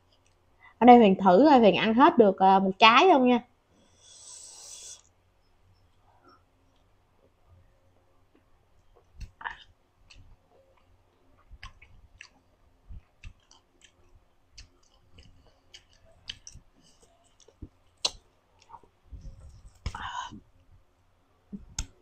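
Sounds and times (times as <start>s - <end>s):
wet chewing clicks and smacks: 8.3s - 20.0s.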